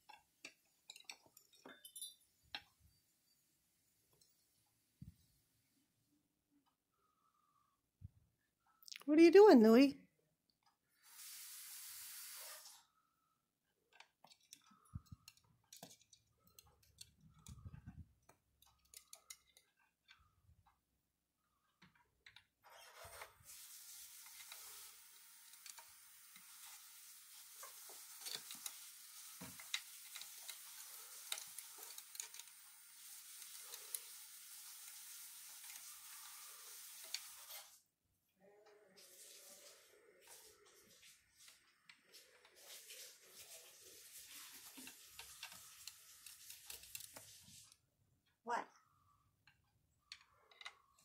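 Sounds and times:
faint steady hiss: 10.7 - 20.8, 21.4 - 47.9.

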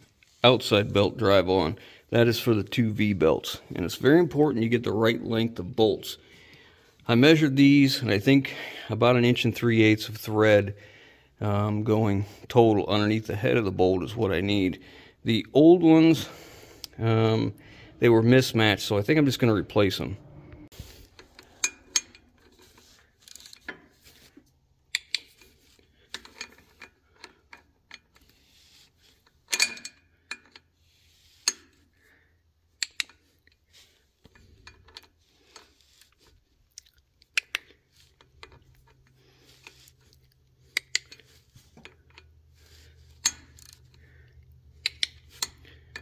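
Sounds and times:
hand tool metallic clicks: 32.8 - 33.6, 44.8 - 46.0.

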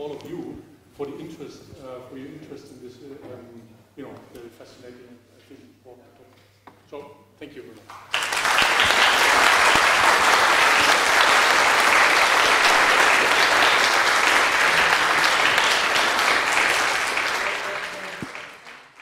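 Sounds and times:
audience clapping: 7.9 - 19.0.

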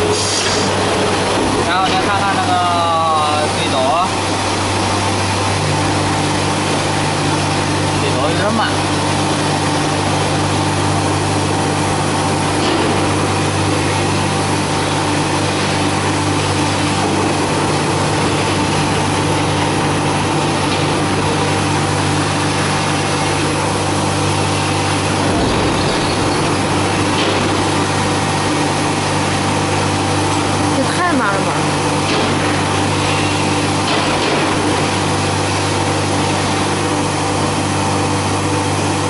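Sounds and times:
cnc router humming and whining: 0.0 - 39.0
deep machine rumble: 0.0 - 39.0.

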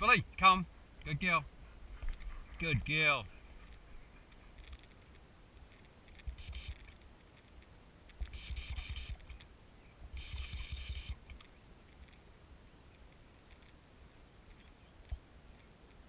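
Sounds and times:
dog whistle shrill pips: 6.4 - 6.7, 8.4 - 9.1, 10.2 - 11.1.

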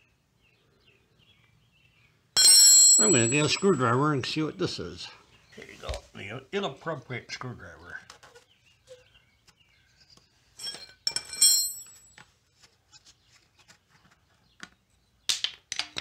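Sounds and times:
ringing metallic clink: 2.4 - 4.0, 10.6 - 12.2.

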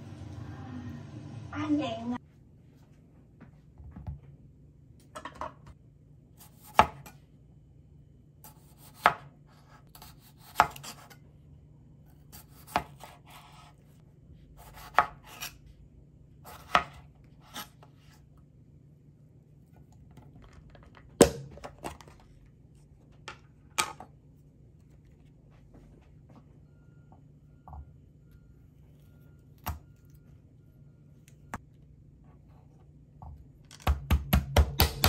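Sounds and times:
knife chopping on cutting board: 6.4 - 7.2, 8.5 - 11.2, 12.3 - 13.7, 14.6 - 15.6, 16.5 - 17.8, 33.8 - 35.0.

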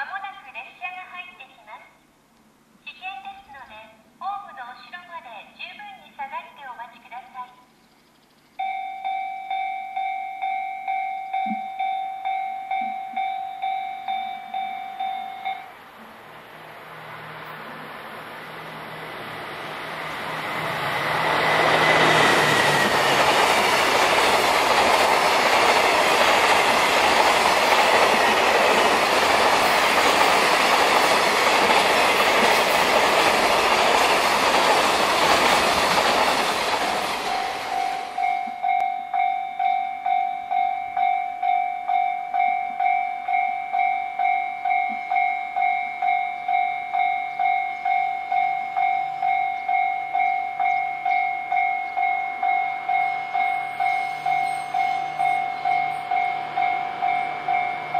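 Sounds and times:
electronic warning bell: 8.6 - 15.8, 37.3 - 57.9
freight train passing: 8.6 - 57.9
wheels rattling on rail: 9.9 - 57.9.

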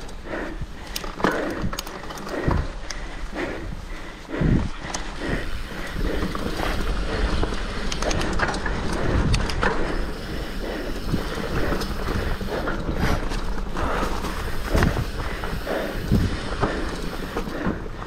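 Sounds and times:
bike rattling over rough ground: 0.0 - 18.0
tyre and wind rumble: 0.0 - 18.0.

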